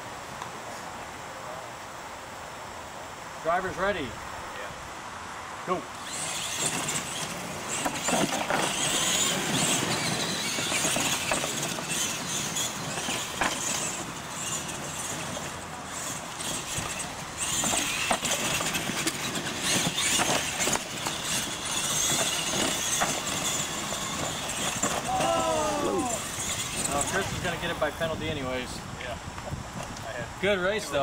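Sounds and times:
electric motors whining: 0:05.9 - 0:28.8.

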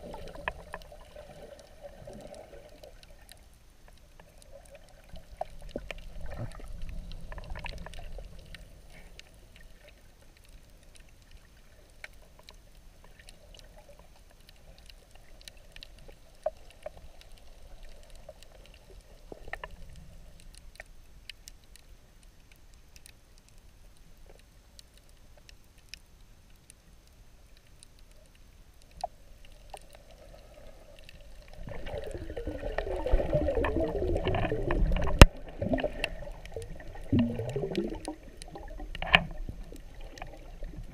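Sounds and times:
water bubbling and churning: 0:00.0 - 0:12.0, 0:29.0 - 0:40.9
muffled underwater wash: 0:00.0 - 0:40.9
small underwater clicks: 0:00.0 - 0:40.9.

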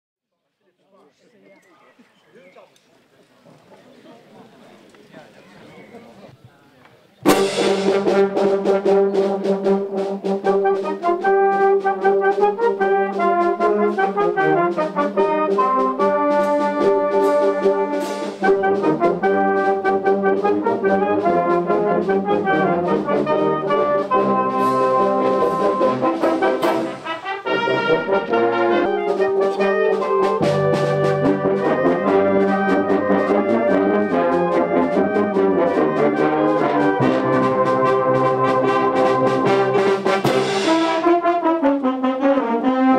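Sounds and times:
wind band playing: 0:07.2 - 0:42.9
steady drum beat: 0:07.3 - 0:41.2.

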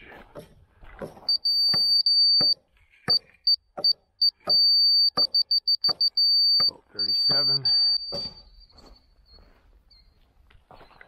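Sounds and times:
laser receiver beeping: 0:01.3 - 0:08.5.

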